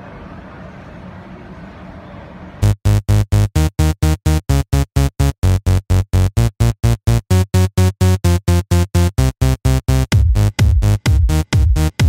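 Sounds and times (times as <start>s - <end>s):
electronic dance music: 2.6s - 12.0s.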